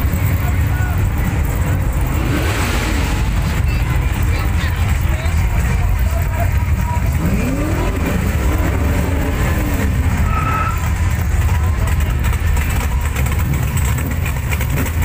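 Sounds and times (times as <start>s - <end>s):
car engines idling: 0.0s - 15.0s.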